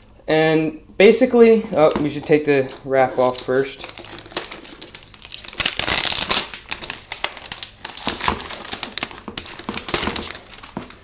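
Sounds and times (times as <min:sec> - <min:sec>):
plastic wrap crinkling: 0:01.2 - 0:11.0.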